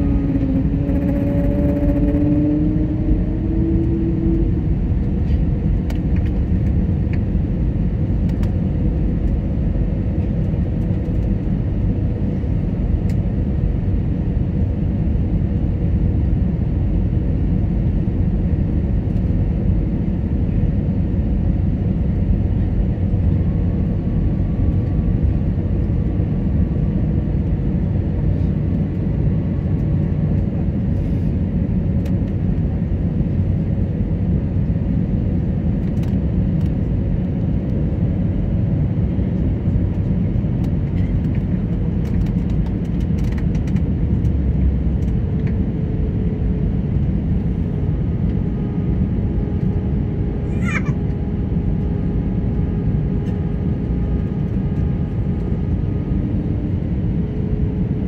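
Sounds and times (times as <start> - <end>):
rising humming tone: 0.0 - 5.9
aircraft cabin rumble: 0.0 - 58.0.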